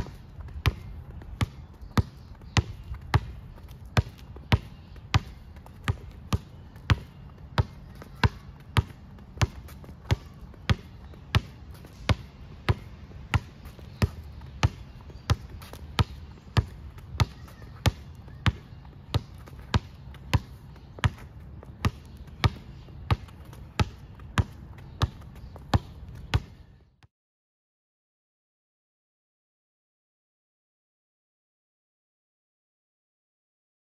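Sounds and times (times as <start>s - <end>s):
basketball bouncing on asphalt: 0.0s - 27.1s.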